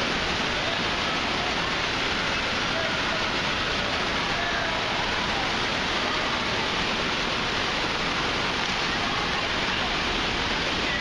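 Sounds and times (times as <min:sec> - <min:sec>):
water splashing: 0:00.0 - 0:11.0
distant voices and shouts: 0:00.4 - 0:06.8.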